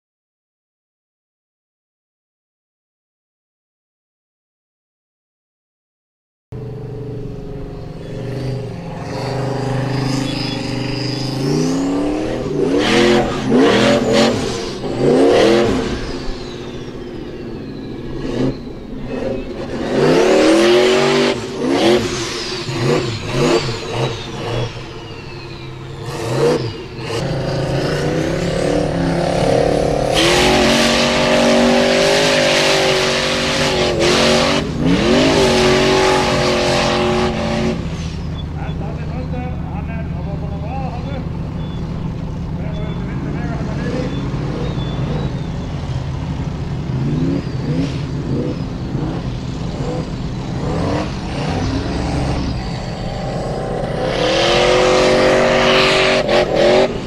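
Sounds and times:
buggy engine revving: 0:06.6 - 0:57.0.

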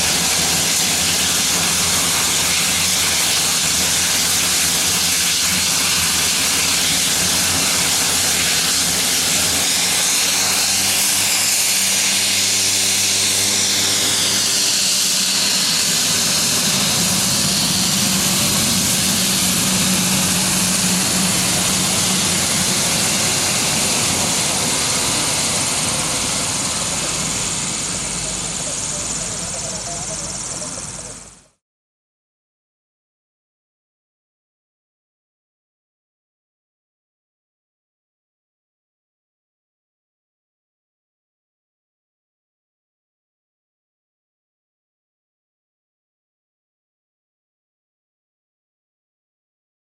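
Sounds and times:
propeller drone: 0:00.0 - 0:31.6
turboprop turbine whine: 0:00.0 - 0:31.6.

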